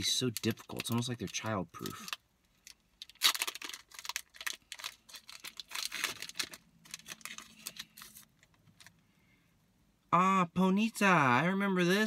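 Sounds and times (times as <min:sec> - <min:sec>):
card pack wrapper crinkling and tearing: 0:00.0 - 0:09.0.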